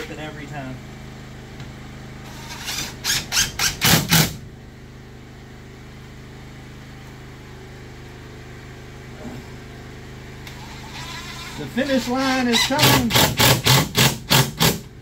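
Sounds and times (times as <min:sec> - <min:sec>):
steady low hum: 0:00.0 - 0:15.0
cordless drill driving a screw: 0:02.3 - 0:04.3, 0:10.6 - 0:14.8.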